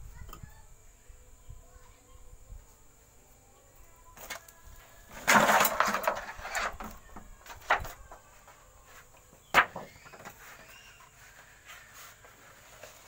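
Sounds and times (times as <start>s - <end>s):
rustling and scraping: 4.2s - 13.0s.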